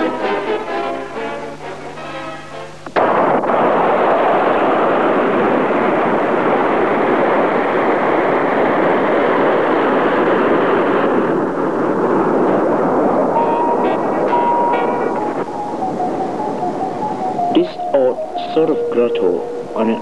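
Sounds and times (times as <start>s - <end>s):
brass-led orchestral music: 0.0s - 2.8s, 13.4s - 15.4s.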